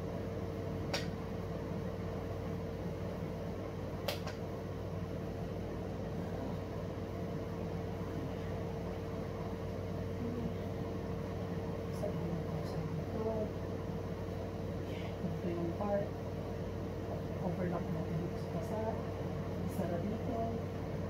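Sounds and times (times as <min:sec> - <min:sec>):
appliance humming: 0:00.0 - 0:21.0
sharp click: 0:00.9 - 0:01.2, 0:04.0 - 0:04.4.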